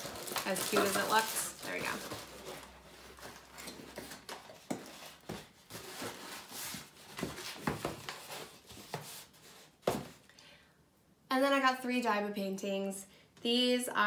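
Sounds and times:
cardboard flaps rustling and scraping: 0.1s - 10.2s.

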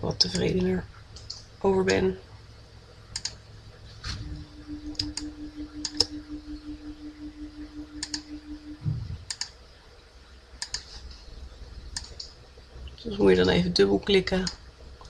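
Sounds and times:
low pulsing hum: 0.0s - 15.0s
computer mouse clicking: 3.2s - 3.4s, 4.9s - 6.1s, 8.0s - 8.2s, 9.2s - 9.6s, 10.6s - 10.9s, 11.9s - 12.4s
soft low thump: 8.8s - 9.3s.

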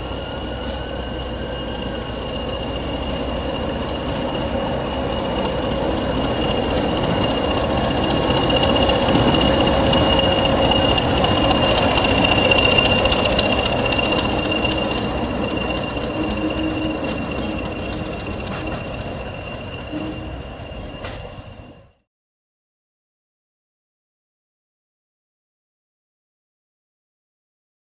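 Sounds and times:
diesel locomotive passing: 0.0s - 22.0s.

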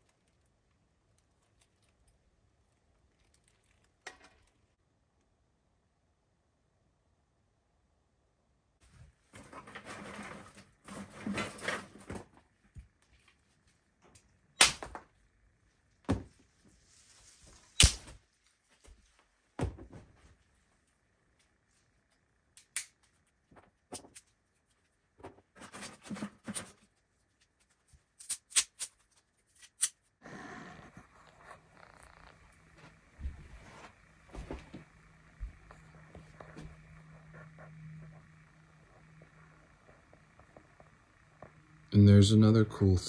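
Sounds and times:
sticks rustling and clattering: 9.3s - 12.5s.

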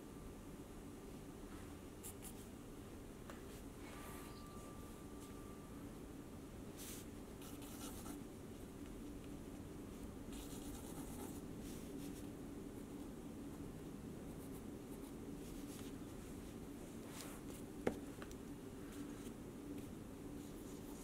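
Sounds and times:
pencil scratching on paper: 10.4s - 11.4s.

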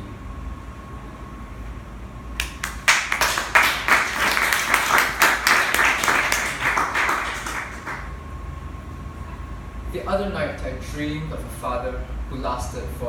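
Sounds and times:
audience clapping: 2.4s - 8.2s.

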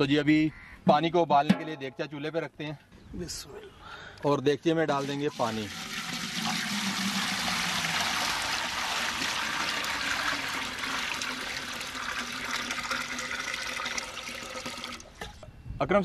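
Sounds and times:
water pouring into metal pot: 5.0s - 15.1s.

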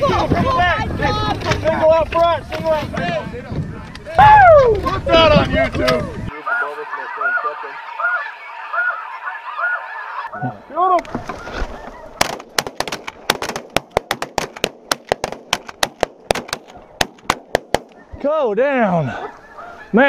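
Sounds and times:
geese calling: 4.8s - 12.4s, 17.8s - 20.0s
shotgun shots: 12.2s - 18.0s.

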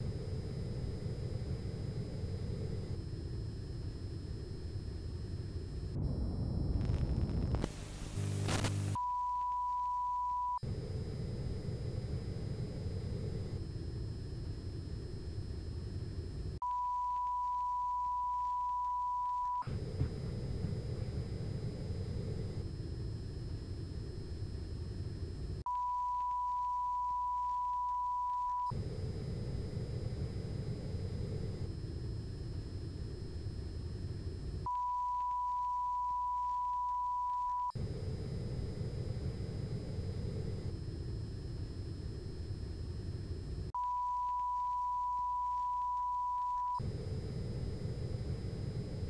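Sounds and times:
low rumbling hiss with whine: 0.0s - 49.0s.

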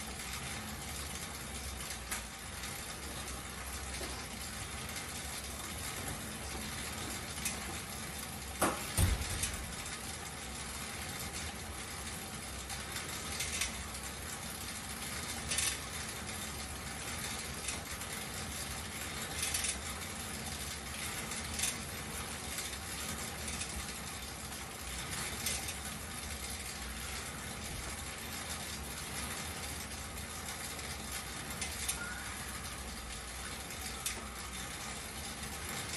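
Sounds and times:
exercise bike fan whirring: 0.0s - 35.9s
mechanism clicks and clinks: 1.8s - 10.3s, 12.6s - 14.1s, 15.1s - 24.0s.

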